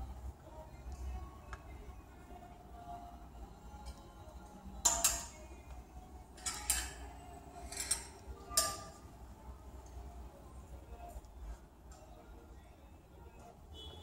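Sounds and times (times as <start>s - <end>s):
clothes hangers clicking on metal rail: 4.8s - 5.4s, 6.4s - 9.0s.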